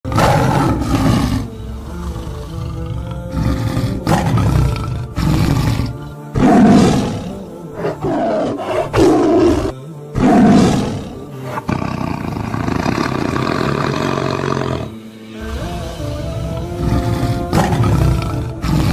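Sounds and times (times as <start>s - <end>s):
background music: 0.0s - 18.9s
big cats roaring and growling: 0.0s - 18.9s.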